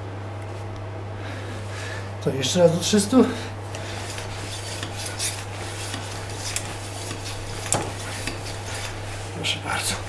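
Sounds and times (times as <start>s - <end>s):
steady low hum: 0.0s - 10.0s
hand pump click and hiss: 4.7s - 8.9s.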